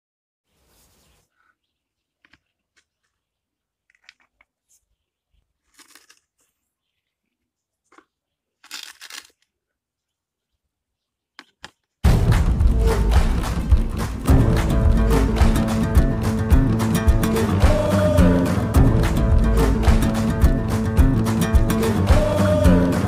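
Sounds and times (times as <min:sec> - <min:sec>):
loud music: 0:12.0 - 0:23.0.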